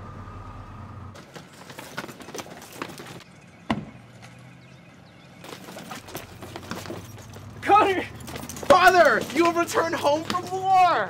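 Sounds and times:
car engine idling: 0:00.0 - 0:01.3.

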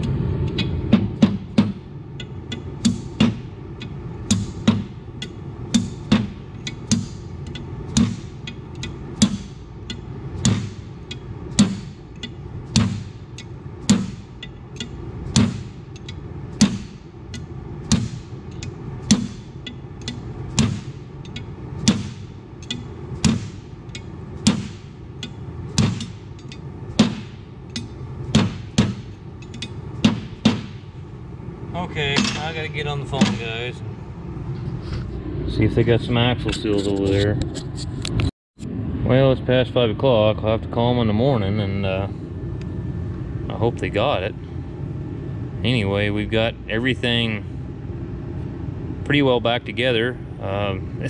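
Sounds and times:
hammer striking steel: 0:00.5 - 0:03.5, 0:04.3 - 0:30.9, 0:32.1 - 0:33.6.

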